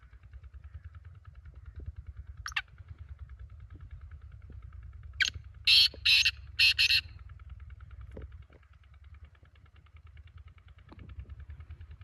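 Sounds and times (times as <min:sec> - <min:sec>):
partridge calling harshly: 0:02.4 - 0:02.6, 0:05.2 - 0:07.0.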